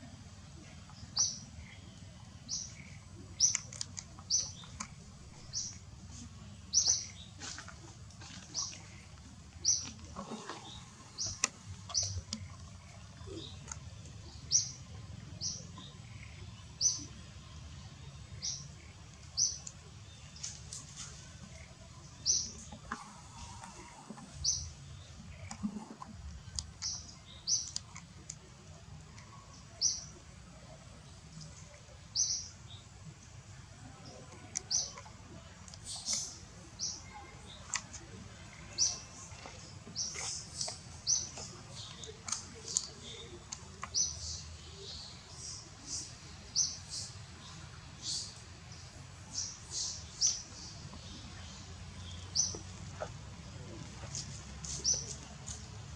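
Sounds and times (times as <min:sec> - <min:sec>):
bird chirping: 0:00.6 - 0:05.9, 0:06.7 - 0:07.5.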